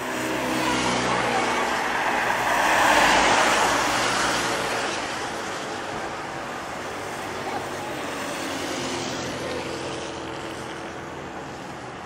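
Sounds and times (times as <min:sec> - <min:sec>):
tyres hissing on wet road: 0:00.0 - 0:12.0.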